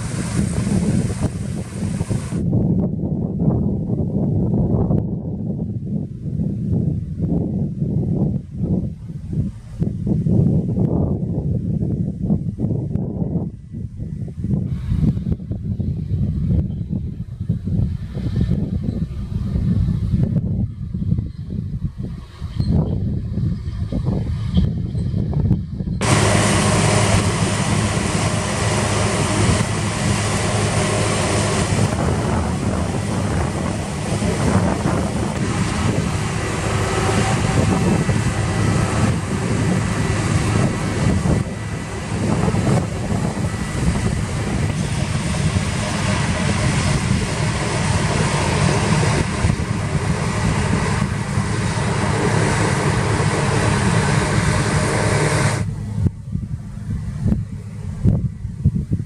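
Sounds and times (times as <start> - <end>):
threshing hiss: 0.0 - 2.5, 26.0 - 55.8
combine harvester engine hum: 0.0 - 59.0.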